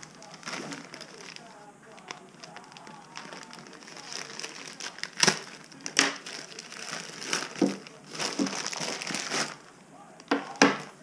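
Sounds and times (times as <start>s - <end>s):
plastic bag crinkling and rustling: 0.0s - 11.0s
knife cutting plastic: 2.4s - 9.6s.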